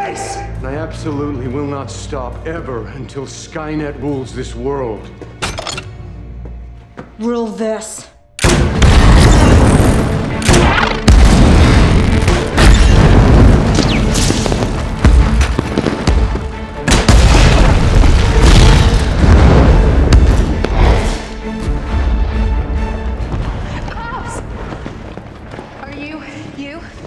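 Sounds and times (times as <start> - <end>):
dramatic film score: 0.0 - 27.0
heavy explosion booms: 8.5 - 10.3, 11.1 - 21.2.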